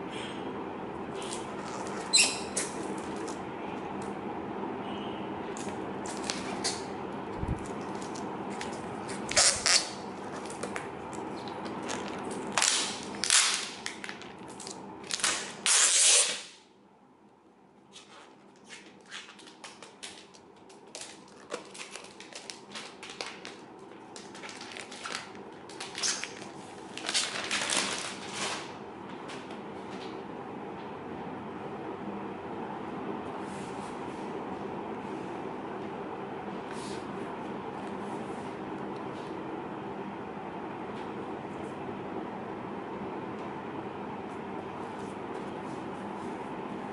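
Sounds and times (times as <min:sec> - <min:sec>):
steady hum: 0:00.0 - 0:46.9.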